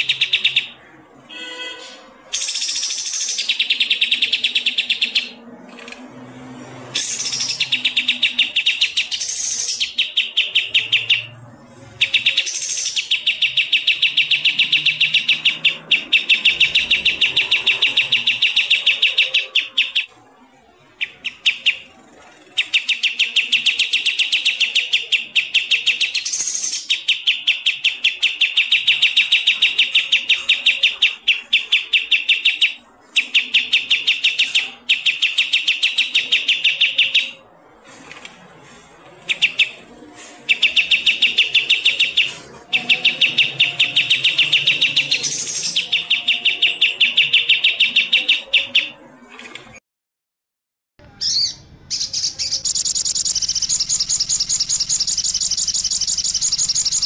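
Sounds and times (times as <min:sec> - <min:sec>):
songbird fast high chirps: 0:51.2 - 0:57.0.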